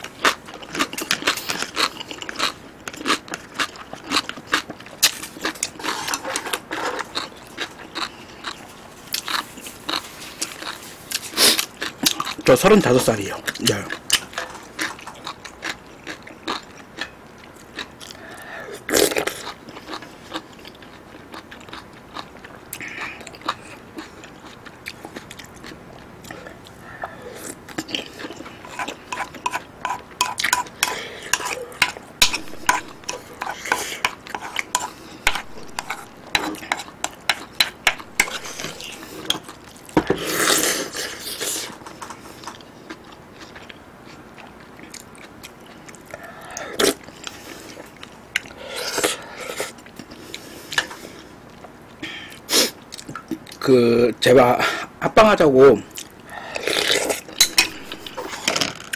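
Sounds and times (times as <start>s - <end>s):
chewing and slurping: 0.0s - 53.6s, 55.9s - 58.9s
utensils knocking against pan: 57.4s - 57.9s.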